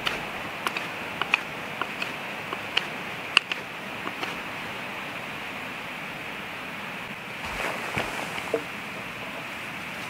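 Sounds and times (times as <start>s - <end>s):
steady hiss: 4.3s - 10.0s.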